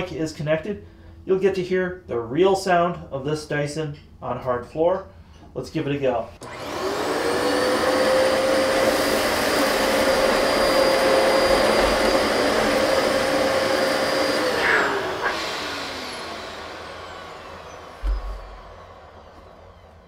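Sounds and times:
suction airflow rushing: 0:06.4 - 0:19.8
vacuum cleaner motor whining: 0:06.4 - 0:20.0.

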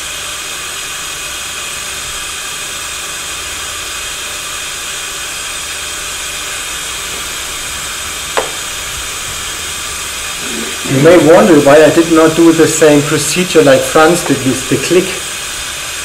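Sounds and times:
vacuum pick-up air hiss: 0:00.0 - 0:16.0.

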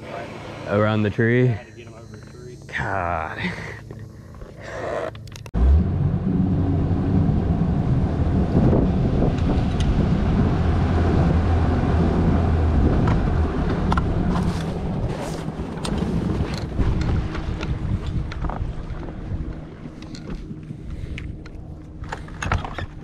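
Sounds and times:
outboard motor running: 0:03.6 - 0:23.0
wind buffeting microphone: 0:05.9 - 0:23.0
water rushing along a hull: 0:06.1 - 0:22.4.

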